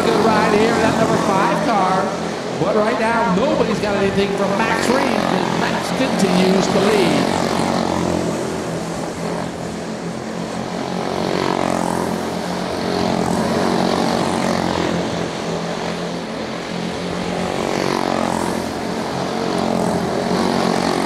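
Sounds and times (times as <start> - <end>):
race car engines buzzing: 0.0 - 21.0.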